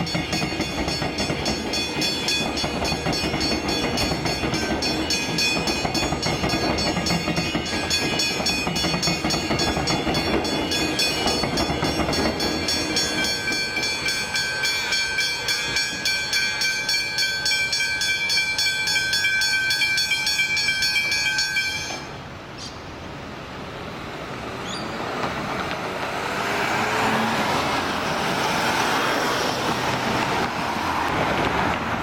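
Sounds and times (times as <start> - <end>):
level crossing bells ringing: 0.0 - 22.3
road traffic: 0.0 - 32.0
train rumbling: 0.0 - 32.0.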